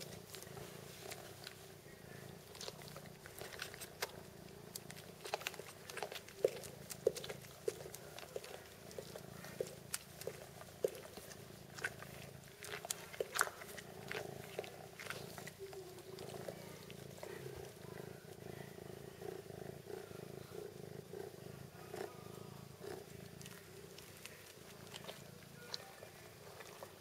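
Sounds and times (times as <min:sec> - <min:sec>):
kitten purring: 0:00.0 - 0:27.0
kitten sucking and smacking: 0:02.4 - 0:18.4, 0:22.8 - 0:27.0.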